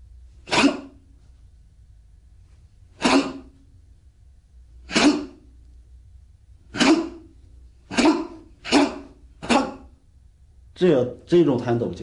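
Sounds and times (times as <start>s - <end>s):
forceful exhalations: 2.9s - 3.6s, 6.7s - 10.0s.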